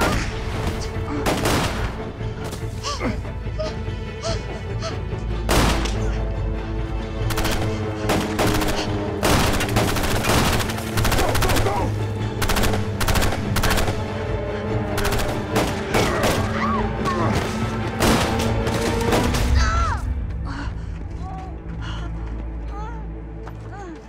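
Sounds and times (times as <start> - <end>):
dramatic music score: 0.0 - 24.0
gunfire bursts: 7.2 - 14.1, 14.9 - 16.5.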